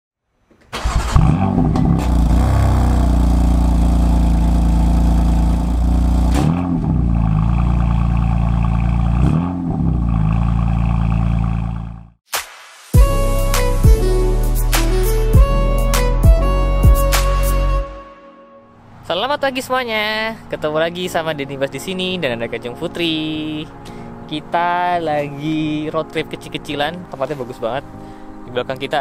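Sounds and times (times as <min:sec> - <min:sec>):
car exhaust idling and revving: 0:01.0 - 0:12.2.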